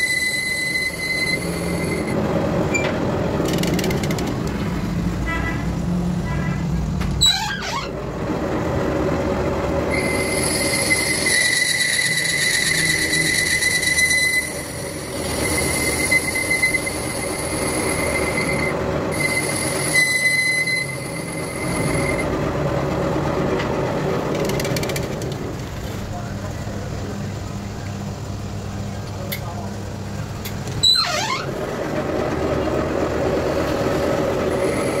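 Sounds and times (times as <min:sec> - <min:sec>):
cutting tool high-pitched squeal: 0:00.0 - 0:02.9, 0:09.9 - 0:22.3, 0:30.8 - 0:31.5, 0:34.5 - 0:35.0
lathe running: 0:00.0 - 0:05.0, 0:08.0 - 0:29.0, 0:31.6 - 0:35.0.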